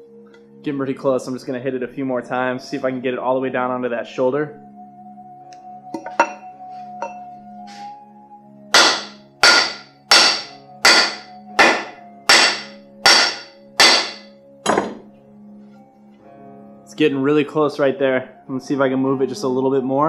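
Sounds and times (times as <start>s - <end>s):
soft background music: 0.0s - 20.0s
hammer blows on wood: 8.7s - 14.3s.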